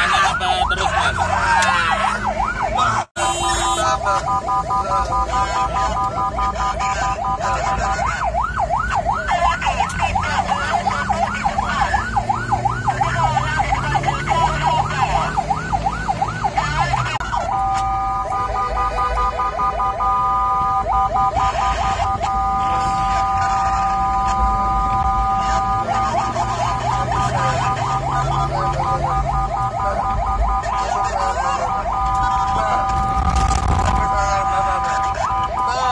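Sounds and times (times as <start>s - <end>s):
siren yelp: 0.0s - 35.9s
steady horn-like siren tone: 0.0s - 35.9s
vehicle engine revving: 0.9s - 34.2s.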